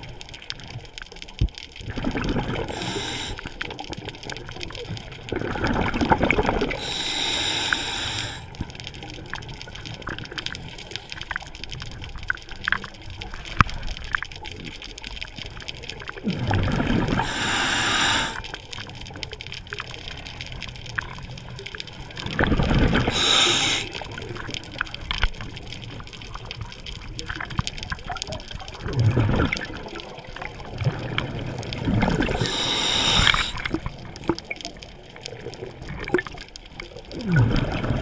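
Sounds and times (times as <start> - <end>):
faint clicks: 2.5 - 38.0
diver breathing through regulator: 2.6 - 3.6, 6.7 - 8.6, 17.1 - 18.6, 23.0 - 24.2, 32.2 - 33.9.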